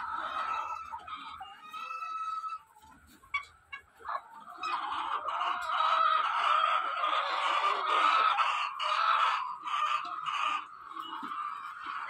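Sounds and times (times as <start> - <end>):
flock of hens clucking: 0.0 - 12.0.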